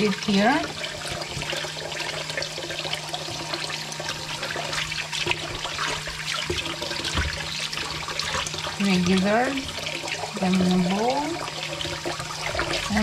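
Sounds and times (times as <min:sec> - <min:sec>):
tap running into bowl: 0:00.0 - 0:13.0
water splashing and sloshing: 0:00.0 - 0:13.0.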